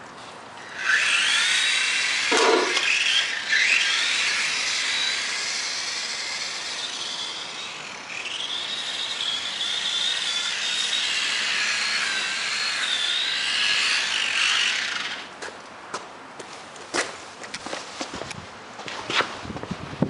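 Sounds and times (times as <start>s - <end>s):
electric motor whining: 0.6s - 15.3s.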